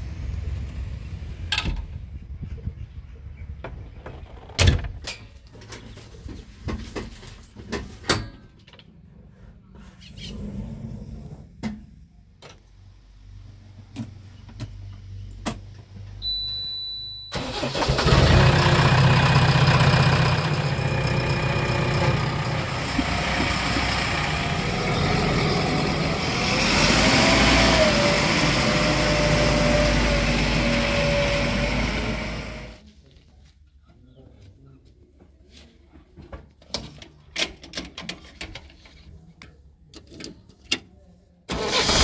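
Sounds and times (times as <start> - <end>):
diesel engine starting and running: 17.3 - 32.8, 41.5 - 42.0
engine whine: 17.3 - 32.8.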